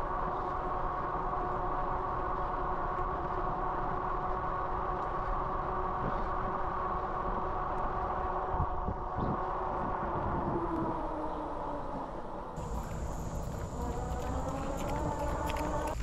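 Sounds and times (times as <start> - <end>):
electric bike motor hum: 12.6 - 16.0.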